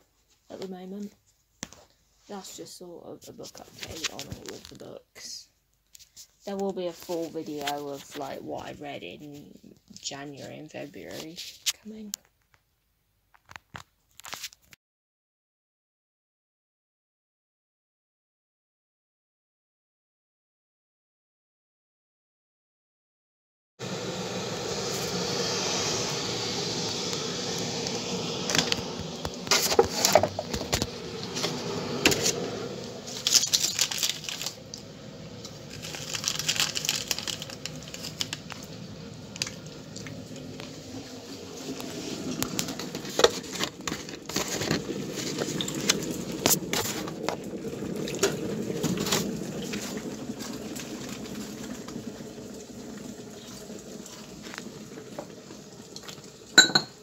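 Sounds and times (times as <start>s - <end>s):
water hissing: 23.8s - 57.0s
mug and utensils clinking: 56.6s - 57.0s.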